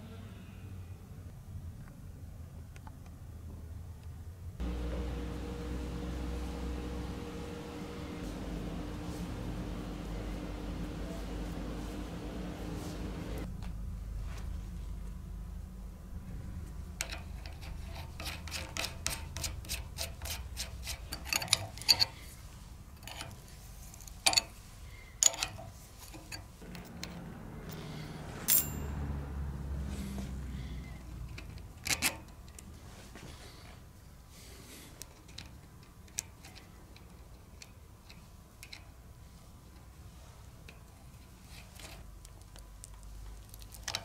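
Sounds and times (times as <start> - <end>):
ringing metal clink: 28.5 - 29.1.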